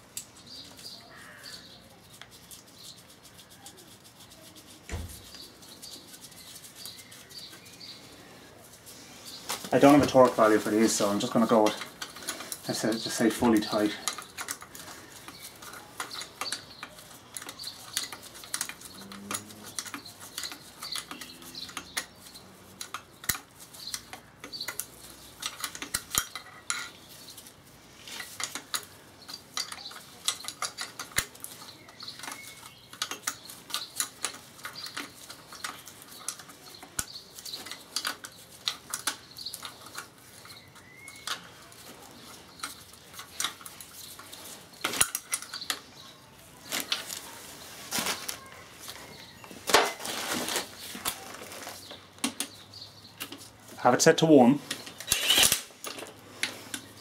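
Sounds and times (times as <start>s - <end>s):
hand ratchet clicking: 55.0s - 56.0s.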